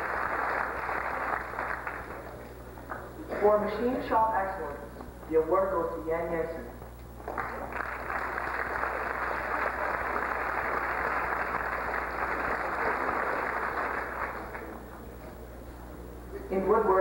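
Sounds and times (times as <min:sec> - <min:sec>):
audience applauding: 0:00.0 - 0:03.1, 0:07.2 - 0:14.9.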